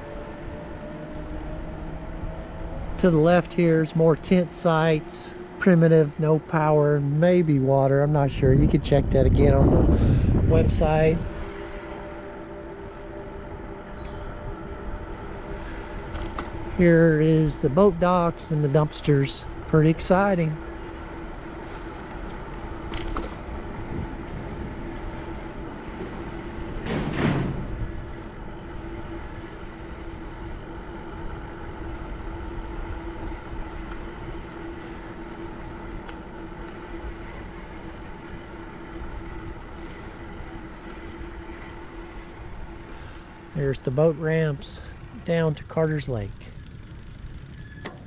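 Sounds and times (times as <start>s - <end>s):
bike rattling on road: 0.0s - 48.0s
faint hum: 0.0s - 48.0s
wind buffeting microphone: 7.8s - 43.9s
bike jolt: 15.7s - 17.0s, 22.2s - 24.2s, 26.0s - 27.8s.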